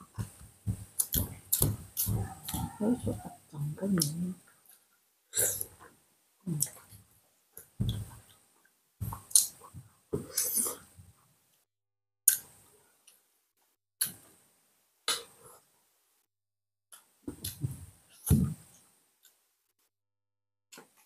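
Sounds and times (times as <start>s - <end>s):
chewing and wet mouth noises: 1.0s - 2.8s, 9.3s - 9.6s.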